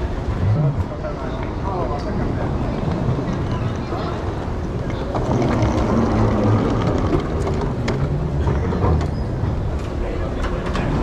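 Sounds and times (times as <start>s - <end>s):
hall background noise: 0.0s - 11.0s
suitcase wheels rolling: 2.6s - 9.8s.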